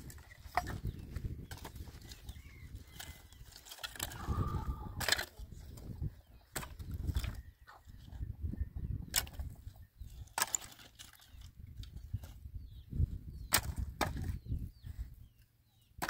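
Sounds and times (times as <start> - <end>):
sticks dragged and tossed: 0.0 - 5.8
dry branches snapping: 2.8 - 4.3, 4.9 - 5.4.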